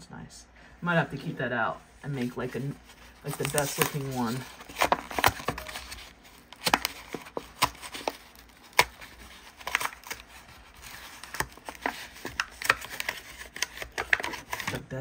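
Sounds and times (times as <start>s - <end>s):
plastic blister crackling: 2.2s - 15.0s
cardboard tearing: 3.0s - 14.8s.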